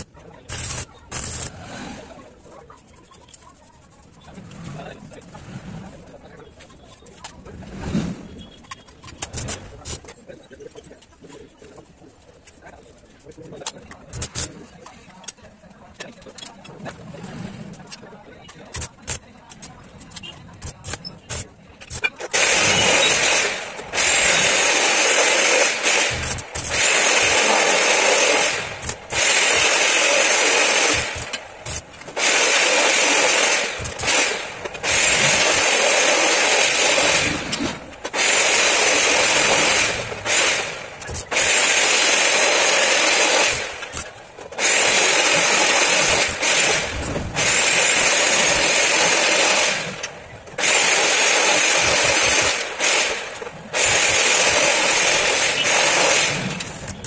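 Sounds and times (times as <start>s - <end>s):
arc welding crackling hiss: 0.0s - 1.8s, 14.1s - 14.5s, 20.2s - 57.0s.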